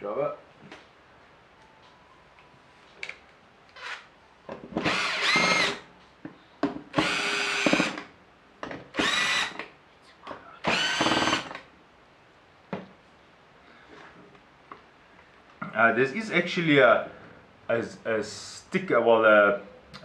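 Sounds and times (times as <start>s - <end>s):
power drill whirring: 3.8s - 4.0s, 4.8s - 5.8s, 6.9s - 8.0s, 8.9s - 9.6s, 10.6s - 11.6s.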